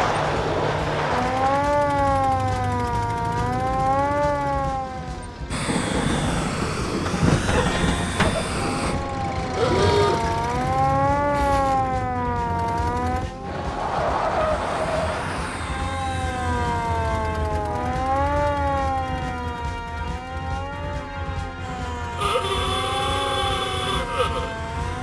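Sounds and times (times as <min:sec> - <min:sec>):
loud rushing noise: 0:00.0 - 0:01.4
police siren wailing: 0:00.0 - 0:25.0.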